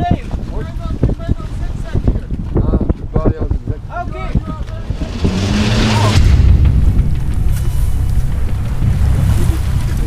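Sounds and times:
wind buffeting microphone: 0.0 - 10.0
sea water rushing: 3.9 - 10.0.

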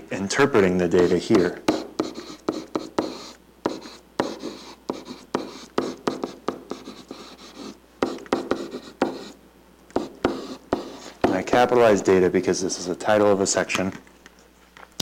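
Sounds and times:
stylus tapping and scratching screen: 0.9 - 11.6.

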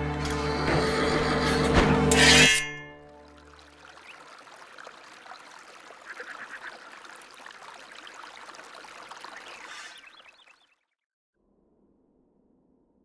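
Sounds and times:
fountain water splashing: 3.2 - 10.8.

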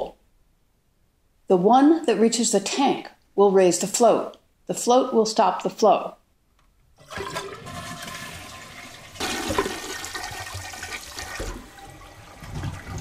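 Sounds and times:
toilet flushing: 7.0 - 13.0.

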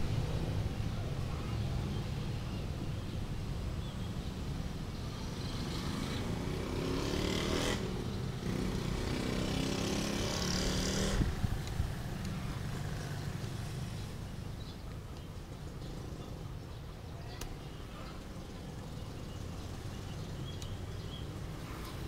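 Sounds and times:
low traffic rumble: 0.0 - 22.0
motor vehicle passing: 5.3 - 14.8.

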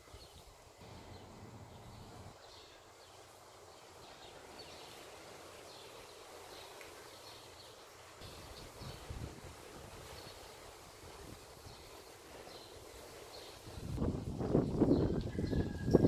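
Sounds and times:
small birds chirping: 10.0 - 16.0.

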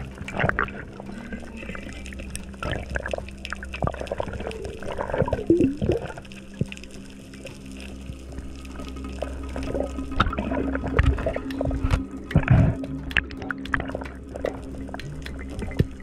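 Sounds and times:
gurgling bubbles: 0.0 - 16.0
underwater water moving: 0.0 - 16.0
scattered clicks: 11.0 - 16.0.

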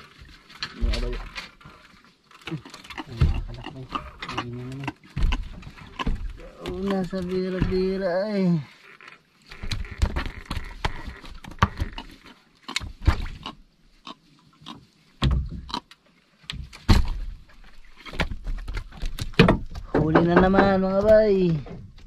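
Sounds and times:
knocks and thuds on wooden deck: 5.2 - 8.1, 15.2 - 15.7, 18.2 - 22.0.

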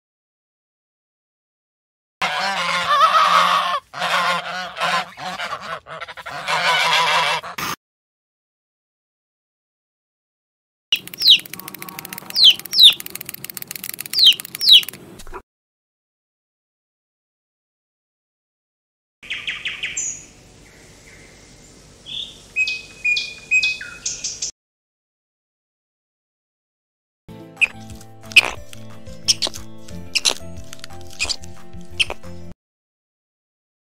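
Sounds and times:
waterfowl honking: 2.2 - 7.6
bird calling short sharp notes: 11.0 - 13.3, 13.9 - 15.0.

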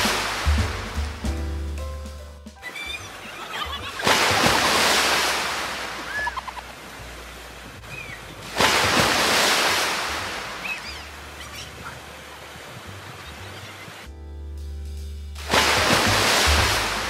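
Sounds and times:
music: 0.0 - 5.4, 14.0 - 17.0
water gushing from slide: 2.8 - 6.9, 8.0 - 12.2, 15.4 - 17.0
rider splashing into pool: 3.2 - 6.4, 8.4 - 10.9, 15.4 - 17.0.

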